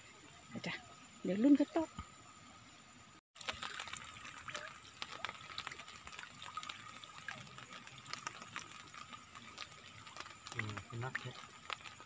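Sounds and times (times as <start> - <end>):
small splashes: 3.4 - 12.0
water trickling and dripping: 3.4 - 12.0.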